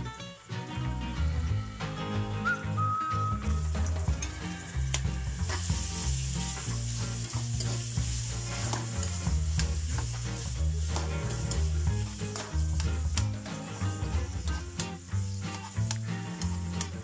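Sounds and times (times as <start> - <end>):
food sizzling in oil: 1.8 - 17.0
spoon scraping a pan: 3.7 - 17.0.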